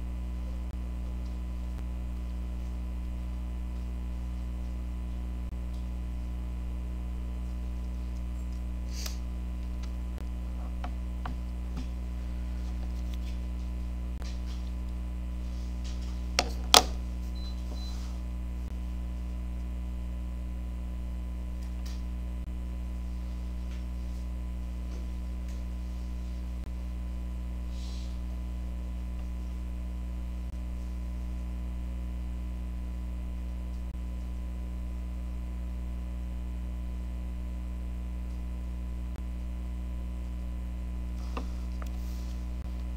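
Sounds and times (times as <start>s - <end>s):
low electrical hum: 0.0s - 42.9s.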